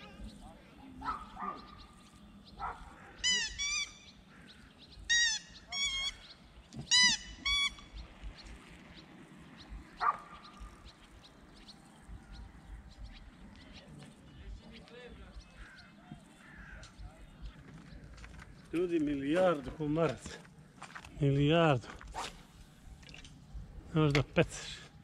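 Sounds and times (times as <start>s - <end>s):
short animal calls: 2.6s - 4.4s.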